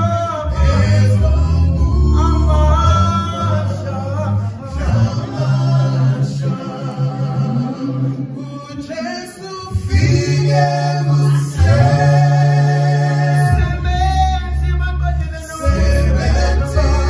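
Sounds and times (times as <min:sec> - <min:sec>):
male group singing in harmony: 0:00.0 - 0:17.0
bass voice low notes: 0:11.0 - 0:17.0.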